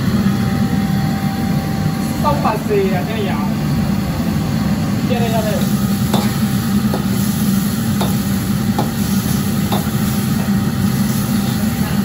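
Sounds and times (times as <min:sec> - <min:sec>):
wok range humming: 0:00.0 - 0:12.0
food sizzling: 0:05.5 - 0:12.0.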